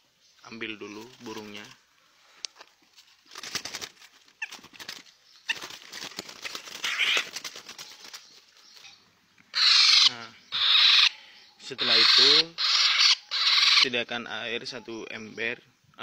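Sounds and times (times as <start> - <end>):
bird wingbeats: 0.8 - 1.8, 3.0 - 8.9
bird squawking harshly: 6.7 - 7.4, 9.5 - 14.0.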